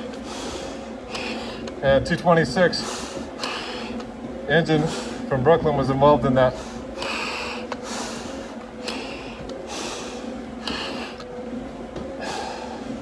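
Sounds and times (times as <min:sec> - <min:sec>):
hard breathing through respirator mask: 0:00.0 - 0:01.8, 0:02.7 - 0:05.3, 0:06.4 - 0:11.3, 0:12.1 - 0:13.0.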